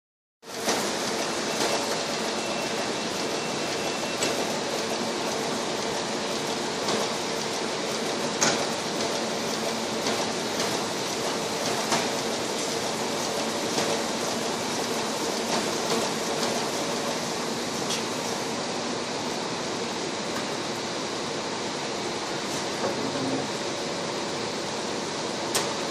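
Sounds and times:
printing press humming: 0:00.5 - 0:25.9
machine clicks and knocks: 0:08.4 - 0:09.2, 0:11.6 - 0:12.2.

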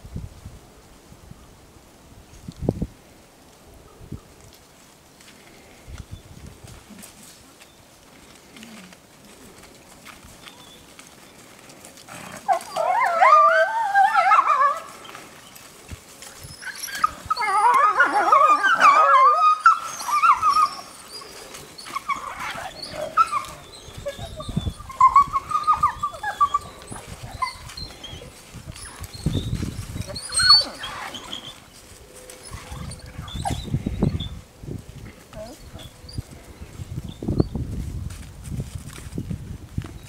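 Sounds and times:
wolves whining and yelping: 0:12.0 - 0:34.5, 0:35.4 - 0:36.4.

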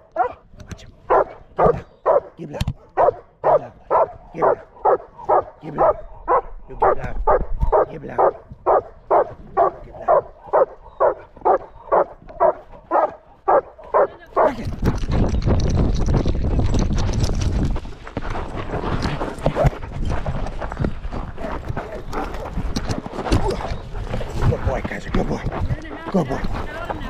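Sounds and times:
dog barking: 0:00.0 - 0:00.4, 0:01.1 - 0:14.6.

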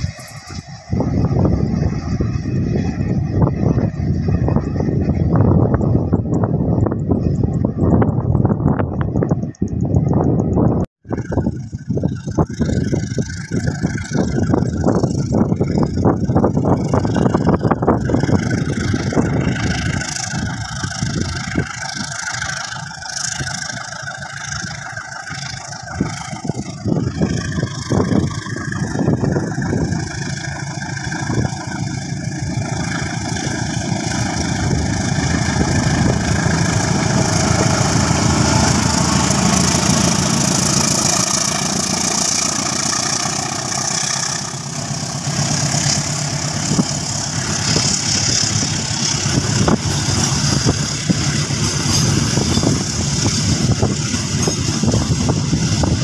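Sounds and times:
locomotive engine passing: 0:00.0 - 0:56.0
rail rumble: 0:00.0 - 0:56.0
wheel clacks: 0:11.5 - 0:56.0.

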